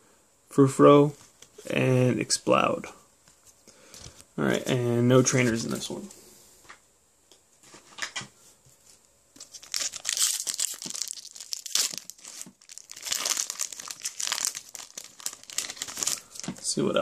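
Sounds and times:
foil wrapper crinkling and tearing: 9.4 - 16.8.

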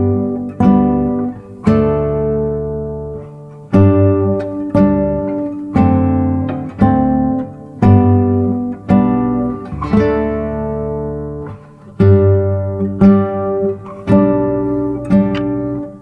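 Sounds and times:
acoustic guitar strumming chords: 0.0 - 16.0.

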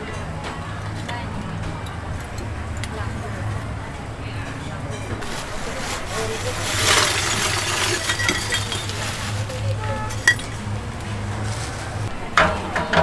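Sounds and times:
charcoal lumps clinking: 5.2 - 12.1
plastic bag rustling: 5.2 - 12.1.

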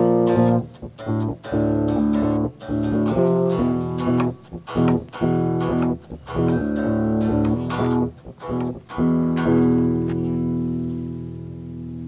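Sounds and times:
guitar playing chords: 0.0 - 12.0.

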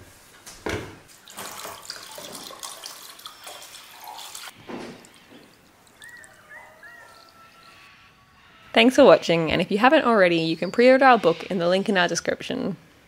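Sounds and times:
liquid pouring and splashing: 1.1 - 6.5
bird chirping: 5.2 - 8.6, 10.2 - 11.8.

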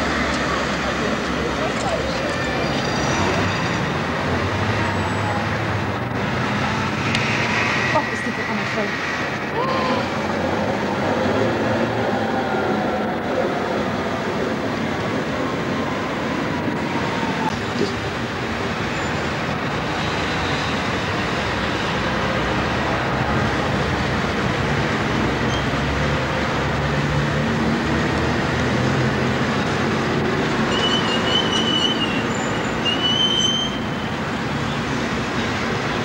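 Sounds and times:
road traffic passing: 0.0 - 36.0
tram running on track: 0.0 - 36.0
high wheel squeal: 30.7 - 34.1.

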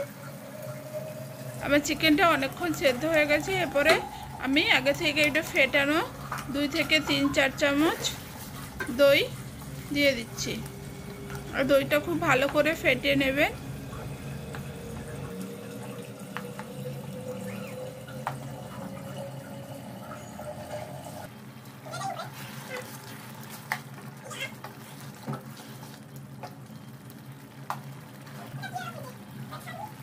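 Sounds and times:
gravy bubbling: 0.0 - 21.3.

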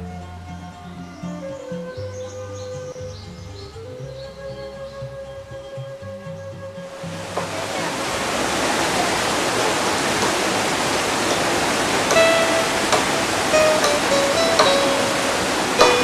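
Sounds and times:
plucked-string music: 0.0 - 16.0
water cascading over rocks: 7.0 - 16.0.

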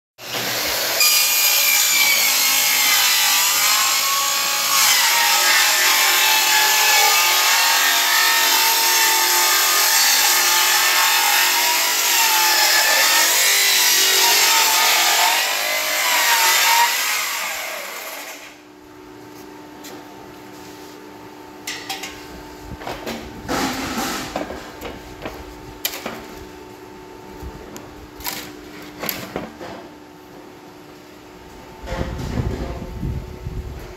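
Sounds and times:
circular saw whining through bamboo: 0.4 - 18.6.

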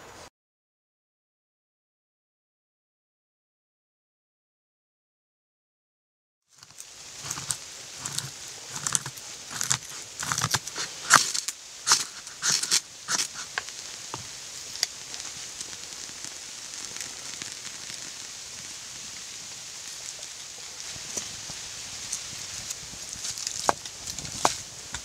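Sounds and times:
fire crack: 6.5 - 25.0
fire hissing: 6.5 - 25.0
knife scraping wood: 6.6 - 13.6.

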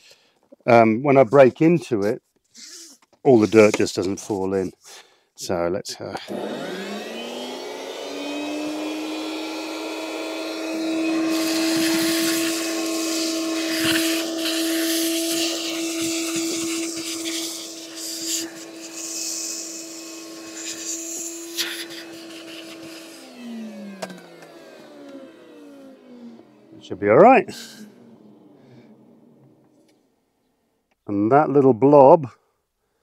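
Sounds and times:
shop vacuum motor whine: 6.2 - 30.1
soil sucked up a hose: 8.7 - 23.4.

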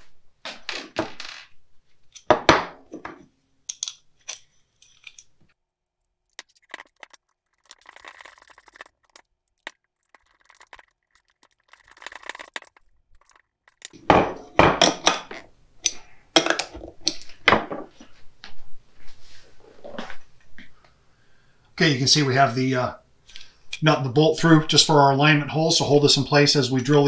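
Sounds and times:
nuts and bolts clinking on metal: 0.8 - 17.6.

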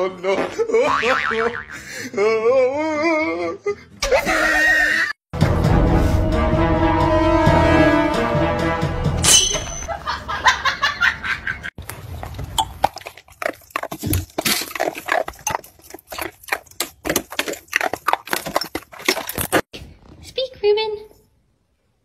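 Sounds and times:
music: 5.3 - 9.3.

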